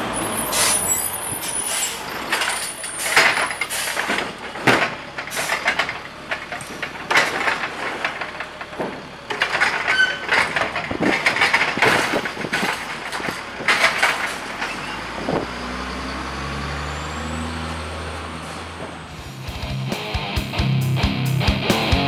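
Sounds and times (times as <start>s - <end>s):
diesel engine running: 0.0s - 22.0s
truck arm knocking and clattering: 1.7s - 15.6s.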